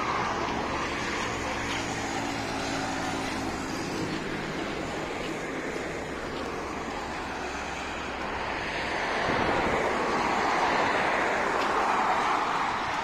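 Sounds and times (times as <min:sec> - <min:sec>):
wind over microphone: 0:08.3 - 0:13.0.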